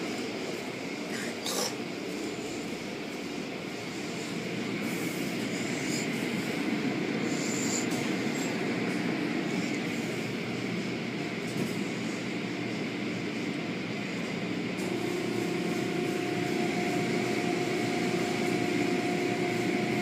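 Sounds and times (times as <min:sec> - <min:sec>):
car wash machinery rushing: 0:14.0 - 0:20.0.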